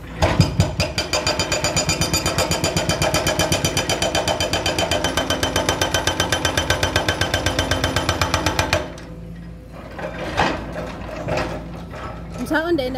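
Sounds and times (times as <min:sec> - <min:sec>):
hydraulic hammer pounding concrete: 0:00.1 - 0:09.0.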